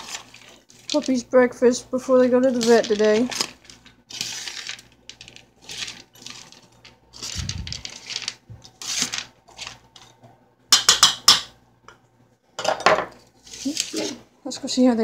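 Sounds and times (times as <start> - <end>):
stirring in a metal pan: 0.0 - 1.3, 2.2 - 9.7.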